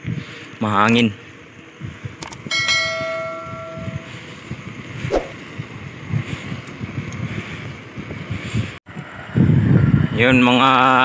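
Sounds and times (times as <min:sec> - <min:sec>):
wind buffeting microphone: 0:01.8 - 0:10.4
bell ringing: 0:02.5 - 0:04.1.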